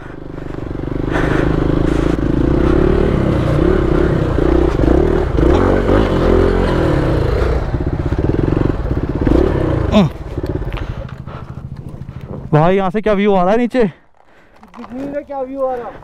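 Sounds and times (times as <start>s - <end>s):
motorcycle engine revving: 0.0s - 12.7s.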